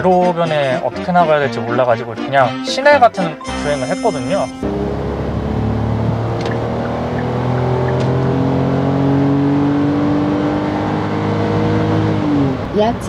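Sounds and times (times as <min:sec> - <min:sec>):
road noise: 0:04.0 - 0:13.0
car engine droning: 0:04.6 - 0:13.0.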